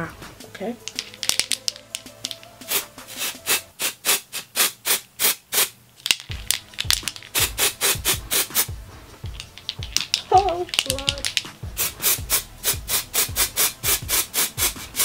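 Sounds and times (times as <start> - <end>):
aerosol spray hissing in bursts: 2.6 - 5.8, 7.1 - 8.8, 11.2 - 15.0.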